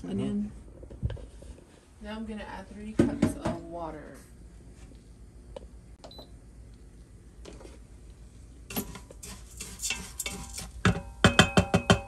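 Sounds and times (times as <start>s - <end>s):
wooden spoon scraping metal pot: 8.7s - 11.2s.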